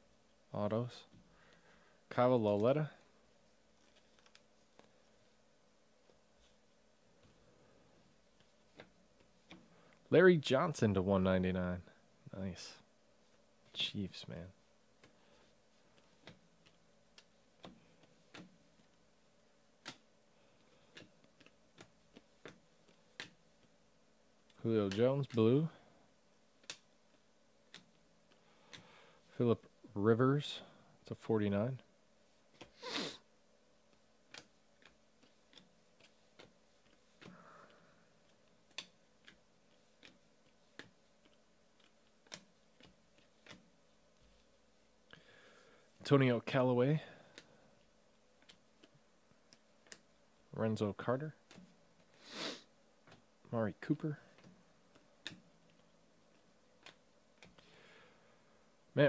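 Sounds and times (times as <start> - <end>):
cards being flipped through: 3.7 - 5.2, 20.7 - 23.7, 34.3 - 44.4.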